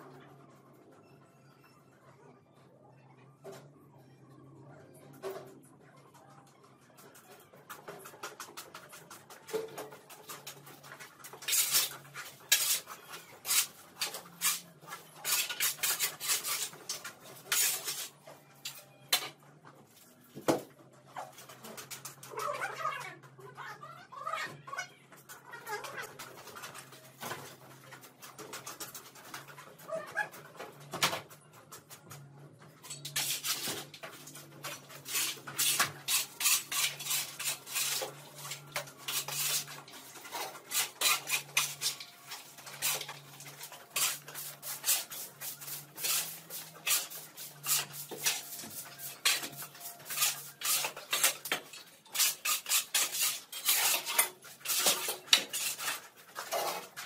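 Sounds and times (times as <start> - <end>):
metal tool scraping concrete: 11.3 - 18.1, 32.9 - 57.0.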